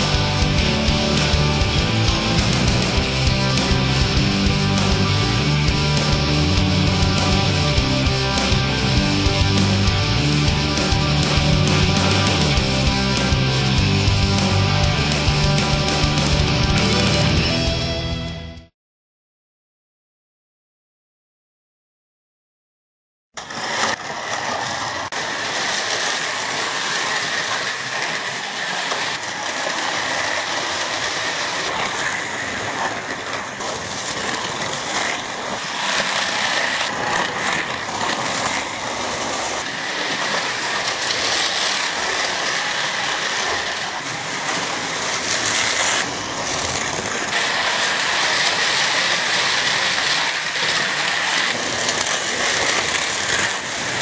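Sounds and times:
cars rattling in track slots: 23.4s - 54.0s
slot car motors whining: 23.4s - 54.0s.

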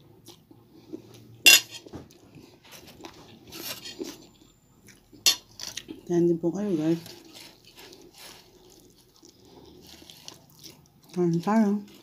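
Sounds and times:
fork clinking on plate: 1.5s - 1.8s.

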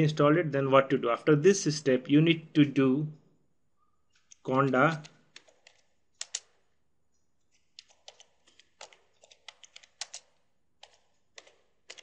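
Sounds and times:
keyboard key clicks: 7.8s - 12.0s.

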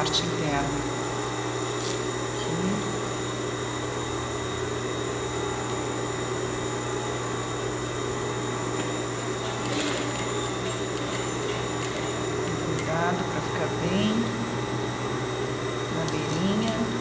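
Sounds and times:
sewing machine motor hum: 1.6s - 2.3s, 4.6s - 14.4s.

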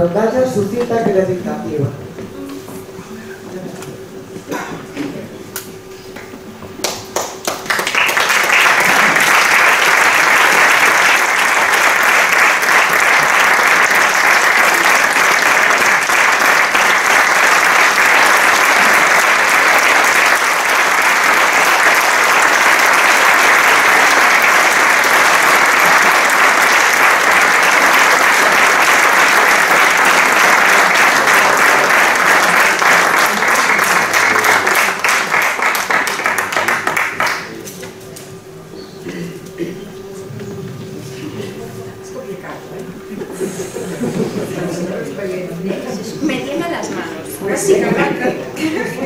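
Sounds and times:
audience applause: 6.8s - 37.7s.

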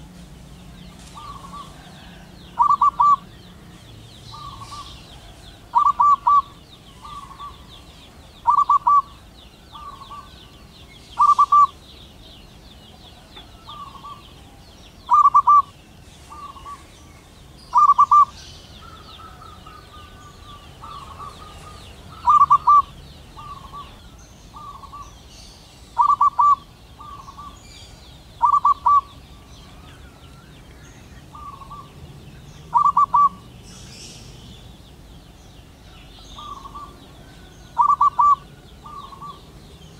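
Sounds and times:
dove cooing: 1.0s - 3.6s, 4.3s - 7.8s, 8.4s - 10.4s, 11.2s - 11.9s, 12.9s - 17.0s, 17.7s - 25.1s, 26.0s - 27.6s, 28.4s - 30.1s, 31.2s - 32.0s, 32.7s - 33.5s, 36.4s - 39.5s.

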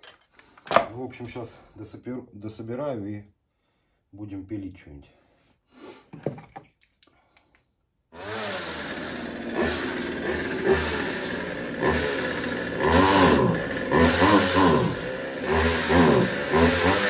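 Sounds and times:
chainsaw revving: 8.2s - 17.0s.

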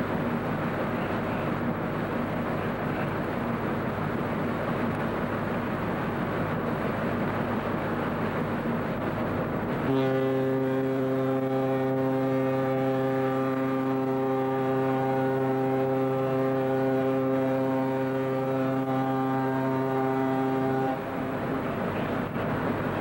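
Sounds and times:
ship's horn long deep blast: 9.7s - 22.3s.

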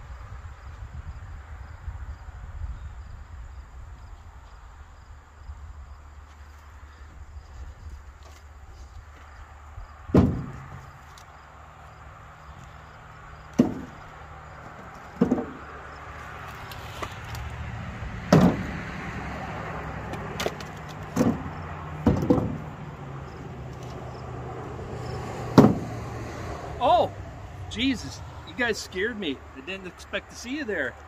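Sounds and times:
firewood knocking into truck bed: 10.1s - 11.0s, 13.5s - 15.8s, 18.2s - 18.8s, 20.0s - 22.9s, 25.5s - 26.0s.

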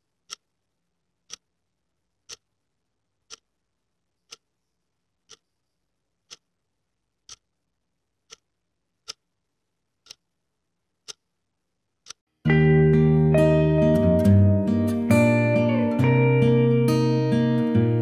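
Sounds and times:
clock ticking: 0.0s - 0.6s, 1.2s - 1.5s, 2.2s - 2.6s, 3.2s - 3.5s, 4.2s - 4.5s, 5.2s - 5.6s, 6.2s - 6.5s, 7.2s - 7.6s, 8.2s - 9.3s, 10.0s - 10.3s, 11.0s - 11.3s, 12.0s - 12.3s.

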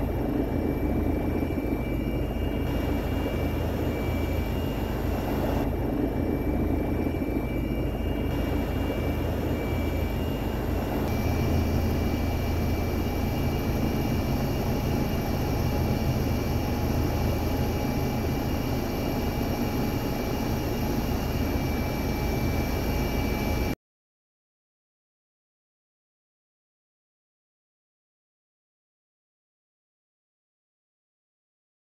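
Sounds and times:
helicopter engine and rotor rumble: 0.0s - 23.8s
high whine: 0.0s - 23.8s.

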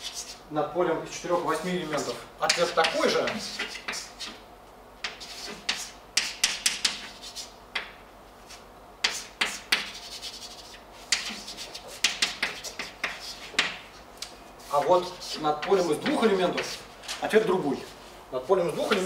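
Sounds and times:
chalk tapping and scratching: 0.0s - 0.4s, 1.8s - 4.4s, 5.0s - 14.0s, 14.6s - 16.9s, 18.7s - 19.0s.

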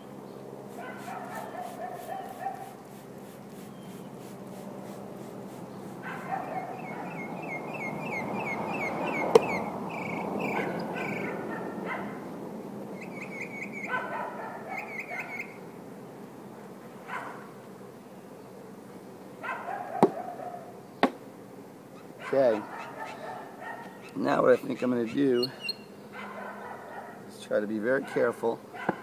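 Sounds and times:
high whining cries with chirps: 0.0s - 11.8s, 21.9s - 27.1s
bee swarm humming: 0.0s - 13.1s, 15.4s - 26.2s
sharp knock: 9.3s - 9.5s.

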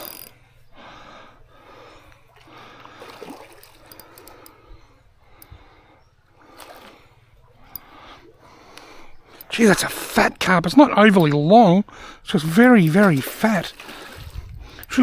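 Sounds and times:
creek water trickling: 0.0s - 15.0s
man breathing: 0.4s - 9.5s, 11.9s - 12.3s.

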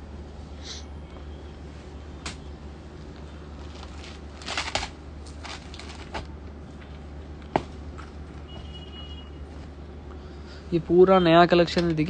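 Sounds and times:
steady low hum: 0.0s - 12.0s
fabric rustling: 1.6s - 6.9s.

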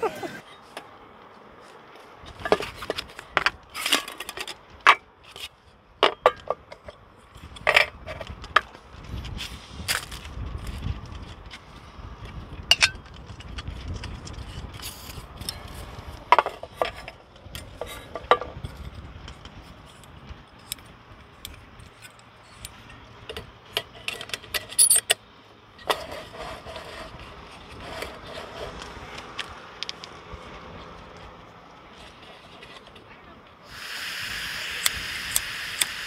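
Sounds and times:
small metal clicks and clinks: 21.4s - 25.2s.

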